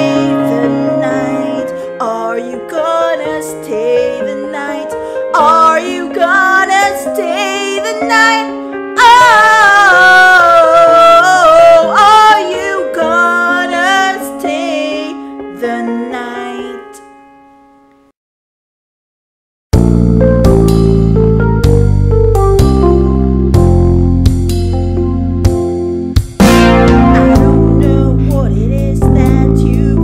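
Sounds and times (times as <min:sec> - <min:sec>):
woman singing: 0:00.0 - 0:17.1, 0:27.3 - 0:30.0
instrumental accompaniment: 0:19.8 - 0:30.0.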